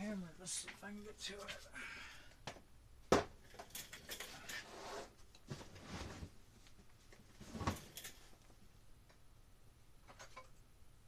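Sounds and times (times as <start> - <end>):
tools rustling and clattering: 3.4 - 4.7, 7.1 - 8.5.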